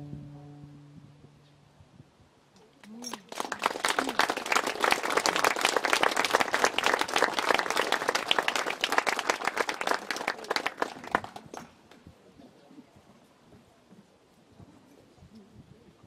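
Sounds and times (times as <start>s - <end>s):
audience applauding: 3.1s - 11.7s.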